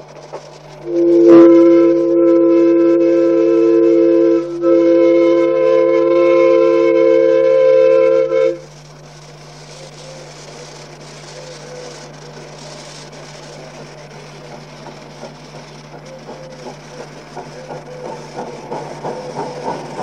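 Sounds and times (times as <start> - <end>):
steady hiss: 0.0 - 20.0
steam whistle chord blast: 0.8 - 8.6.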